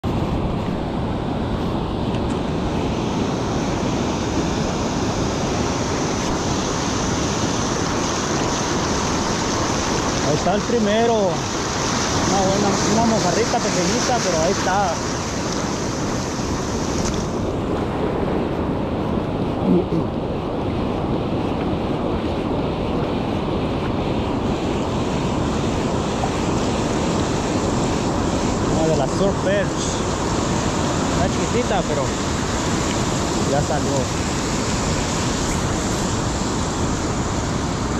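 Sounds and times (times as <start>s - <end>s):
ocean surf breaking: 0.0s - 37.9s
wind buffeting microphone: 0.0s - 37.9s.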